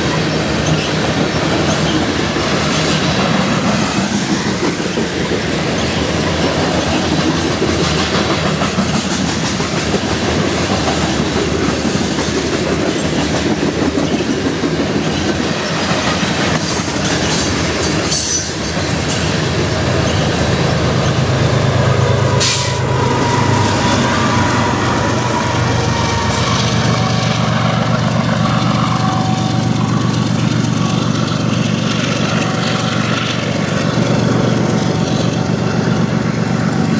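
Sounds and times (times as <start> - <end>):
wheel squeals: 0.0 - 7.1, 22.7 - 31.0
diesel locomotive engine drone: 0.0 - 36.9
train wheels clattering on rails: 0.0 - 36.9.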